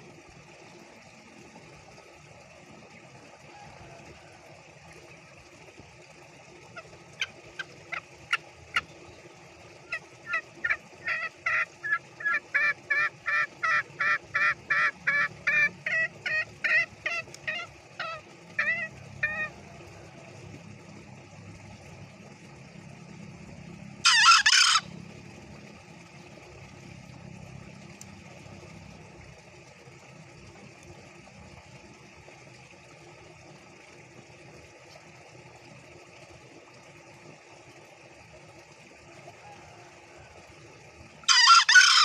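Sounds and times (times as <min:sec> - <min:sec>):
junglefowl cackling: 0:06.8 - 0:08.9, 0:09.8 - 0:20.3, 0:24.0 - 0:24.9, 0:41.3 - 0:42.0.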